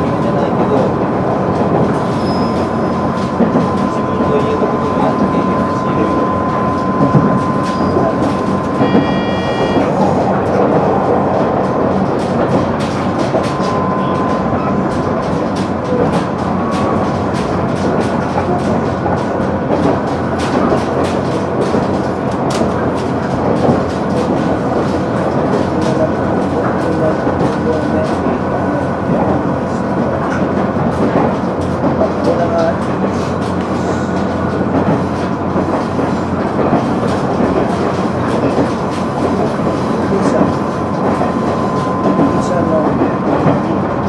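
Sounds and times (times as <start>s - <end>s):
rail-joint clicks: 0.0s - 44.0s
railcar engine and wheels rumbling: 0.0s - 44.0s
high ringing tone: 2.0s - 10.4s, 13.4s - 15.2s.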